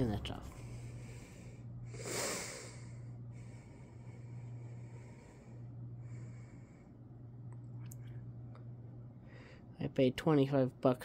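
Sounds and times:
steady low hum: 0.0s - 11.0s
quiet breathing: 0.3s - 8.4s, 9.0s - 9.8s
sharp snorting breath: 1.0s - 3.8s.

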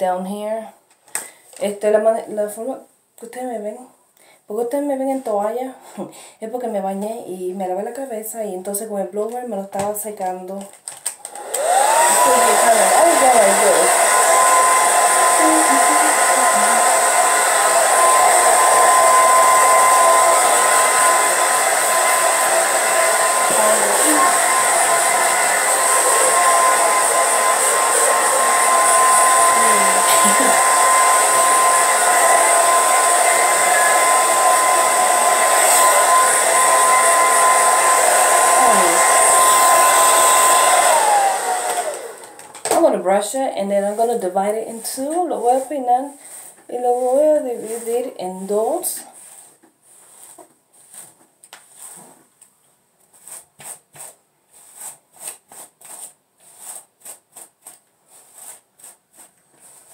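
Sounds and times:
hair dryer blowing: 11.2s - 45.7s, 46.7s - 49.0s.

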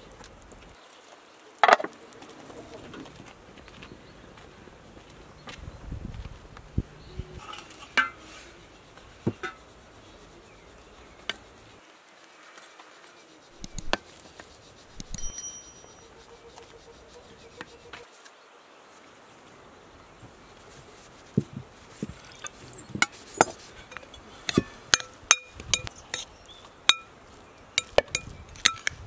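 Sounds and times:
bright ringing glass clink: 15.0s - 16.1s.

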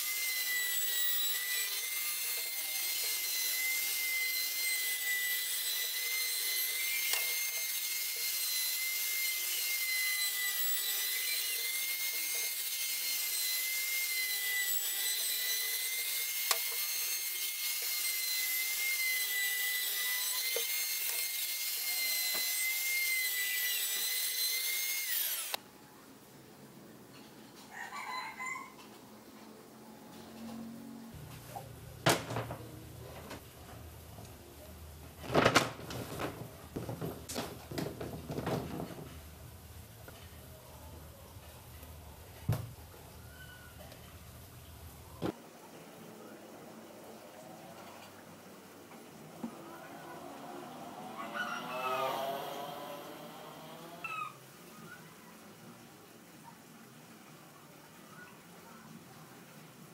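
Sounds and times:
trim router whining: 14.2s - 25.6s.

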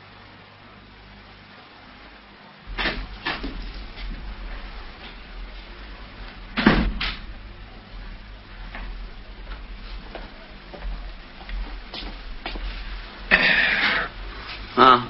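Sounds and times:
low steady hum: 0.0s - 15.0s
door slamming shut: 2.7s - 4.3s, 6.5s - 7.4s.

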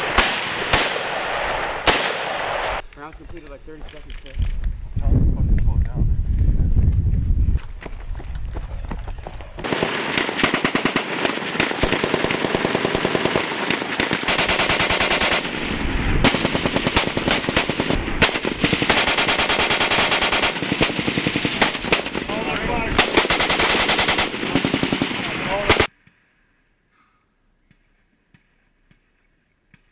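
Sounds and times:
machine gun firing bursts: 9.6s - 22.3s, 23.0s - 25.9s.

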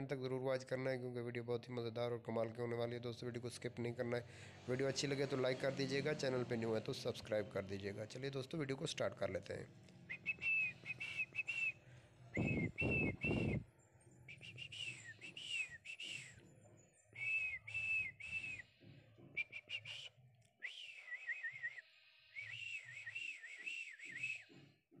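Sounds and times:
high whistled notes: 10.1s - 11.8s, 12.4s - 13.6s, 14.3s - 16.4s, 19.4s - 21.8s
low rushes of noise: 12.4s - 13.6s.

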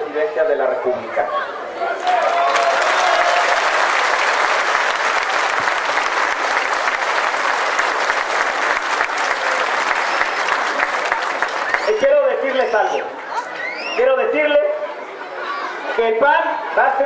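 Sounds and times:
crowd applauding: 2.0s - 13.4s.

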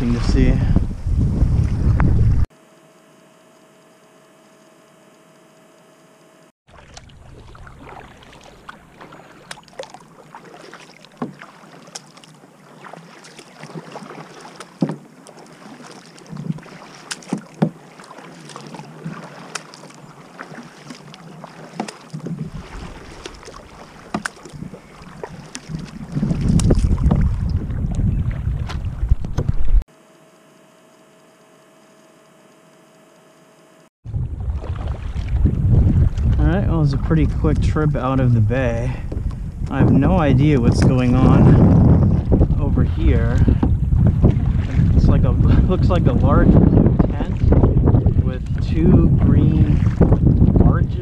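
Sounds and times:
wind buffeting microphone: 0.0s - 2.5s, 24.5s - 29.8s, 34.1s - 51.0s
paddle splashing in water: 6.7s - 29.8s, 34.1s - 36.4s, 43.4s - 45.5s, 46.8s - 50.6s.

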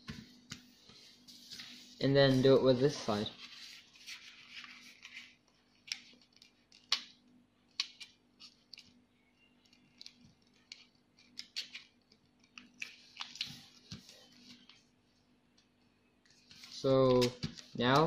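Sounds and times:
paper rustle: 0.0s - 7.0s
paper crackling and snapping: 3.9s - 8.9s, 9.6s - 14.7s.

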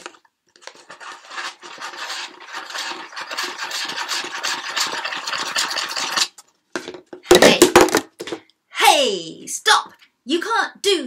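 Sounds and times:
scratchy rubbing on plastic tub: 0.6s - 6.4s.

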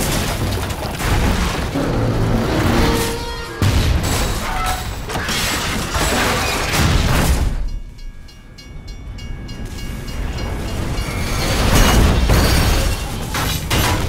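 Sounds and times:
train carriage grinding on rails: 0.0s - 14.0s
level-crossing bell ringing: 7.7s - 11.9s.

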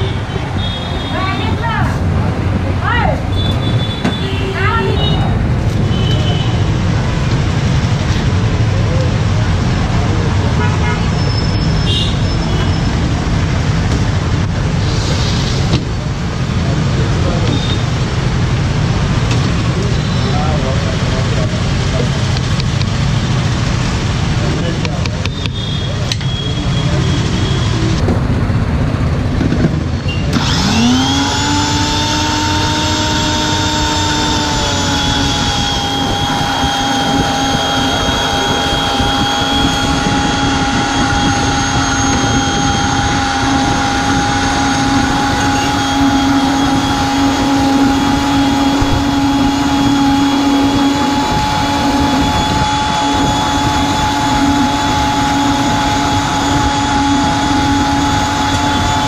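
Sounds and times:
blender motor whining: 30.2s - 59.0s.

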